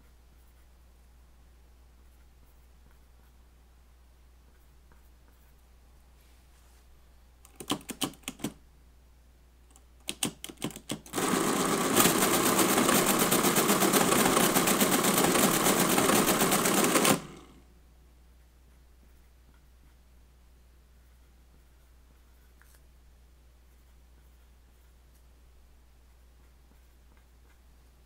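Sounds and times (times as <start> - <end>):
mechanical calculator clatter: 10.1 - 17.6.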